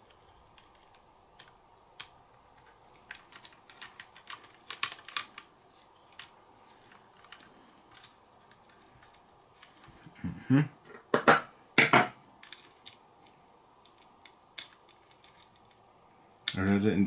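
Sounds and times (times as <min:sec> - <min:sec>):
clicks of small plastic parts: 0:00.1 - 0:05.5, 0:12.4 - 0:15.8.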